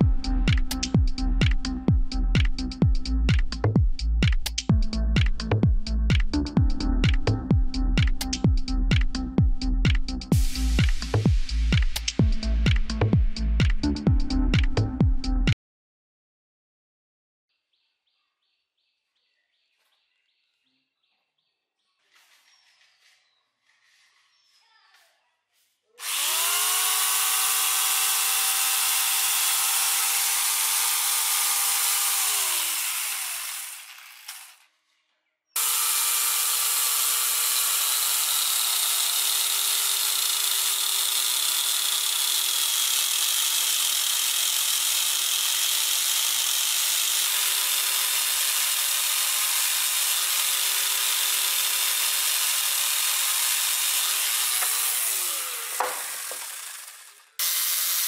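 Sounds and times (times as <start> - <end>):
angle grinder motor whining: 26.0 - 34.6, 35.6 - 58.0
chain cutting tree trunk: 26.0 - 34.6, 35.6 - 58.0.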